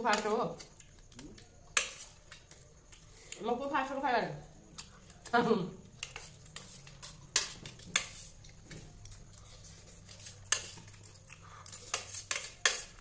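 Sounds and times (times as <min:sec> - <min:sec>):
spoons clinking on steel plate: 0:09.4 - 0:13.0.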